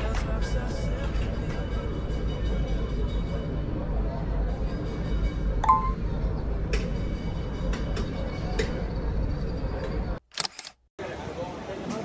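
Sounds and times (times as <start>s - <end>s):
city street rumble: 0.0s - 12.0s
short beep: 5.6s - 6.0s.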